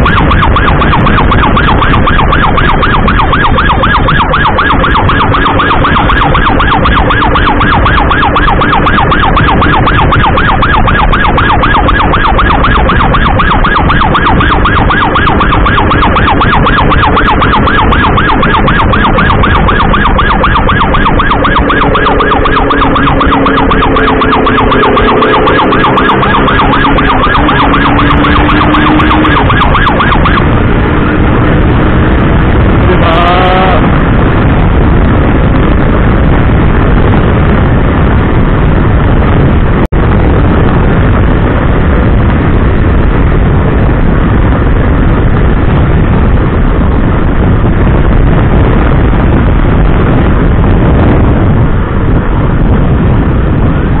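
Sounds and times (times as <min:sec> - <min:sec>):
motorcycle engine: 0:00.0 - 0:34.3
emergency siren warbling: 0:00.0 - 0:42.1
rising siren tone: 0:00.0 - 0:54.0
road and wind noise: 0:00.0 - 0:54.0.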